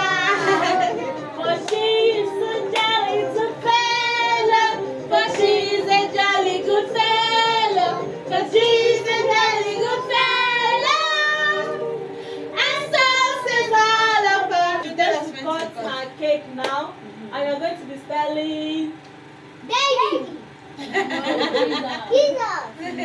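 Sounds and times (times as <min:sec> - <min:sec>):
people singing along: 0:00.0 - 0:15.8
pop song on television speakers: 0:00.0 - 0:19.0.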